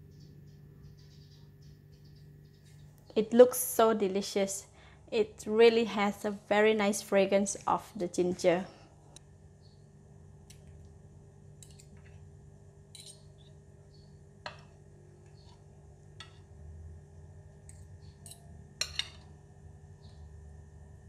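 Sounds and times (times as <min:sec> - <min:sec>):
cutlery clinking on porcelain: 0:13.0 - 0:13.2, 0:18.2 - 0:19.2.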